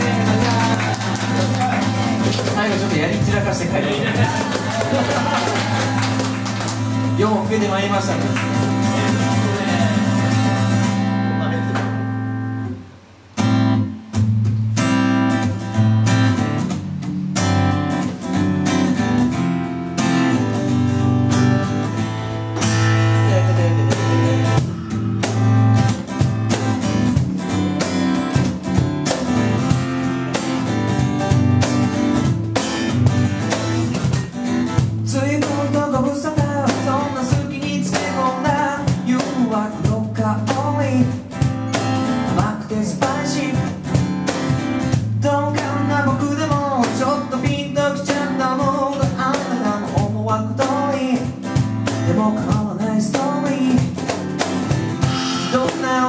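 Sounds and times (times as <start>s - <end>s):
man singing: 0.0s - 5.9s, 7.1s - 10.5s, 23.0s - 25.3s, 35.0s - 41.4s, 42.2s - 44.0s, 45.1s - 54.0s, 55.0s - 56.0s
cajon beat: 0.0s - 12.7s, 13.4s - 56.0s
acoustic guitar strumming chords: 0.0s - 56.0s.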